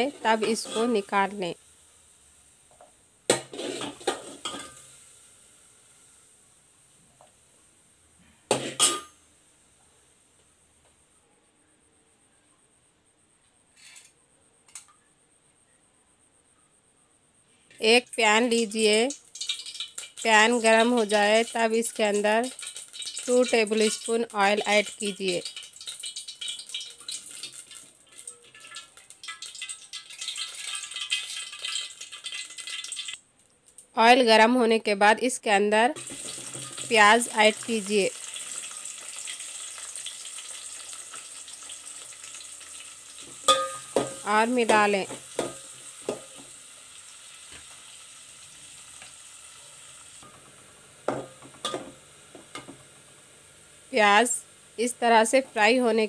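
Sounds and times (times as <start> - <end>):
oil crackling in a hot pan: 0.0 - 9.4, 18.1 - 34.0, 36.0 - 56.0
metal spatula scraping pan: 0.1 - 1.1, 3.4 - 4.9.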